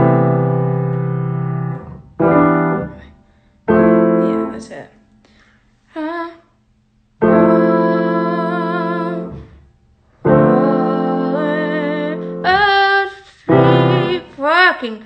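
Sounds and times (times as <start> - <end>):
slow piano chords: 0.0 - 5.2, 7.2 - 14.8
woman singing softly with vibrato: 5.9 - 6.6, 7.2 - 9.6, 10.2 - 15.0.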